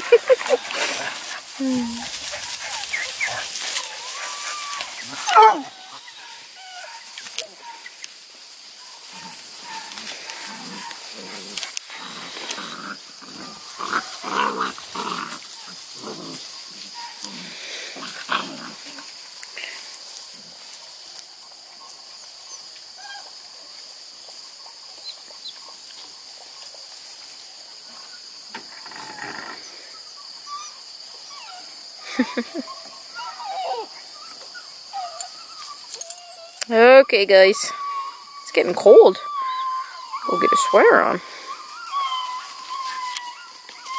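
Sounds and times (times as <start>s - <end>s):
puppies yipping and whining: 0.0s - 8.1s, 8.7s - 12.6s, 13.4s - 17.4s, 21.8s - 23.4s, 28.8s - 43.9s
high insect trill: 0.0s - 43.9s.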